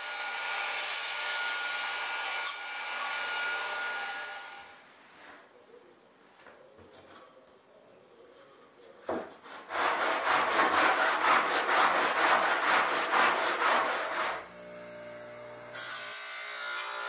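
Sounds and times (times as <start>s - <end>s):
hand deburring strokes on metal: 9.4s - 14.4s
bench grinder motor humming: 14.4s - 15.8s.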